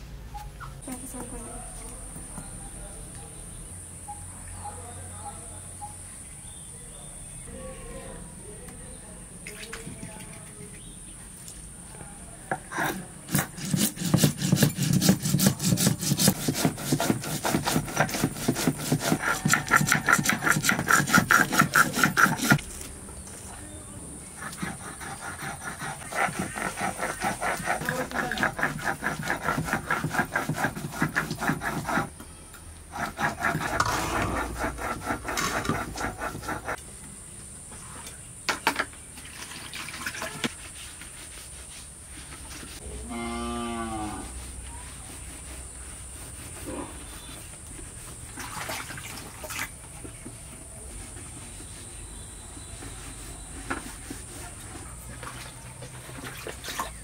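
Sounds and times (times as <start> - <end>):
stone roller scraping on stone: 12.7 - 22.9, 24.4 - 32.1, 32.9 - 36.8, 50.3 - 55.1
cow mooing: 42.8 - 44.4.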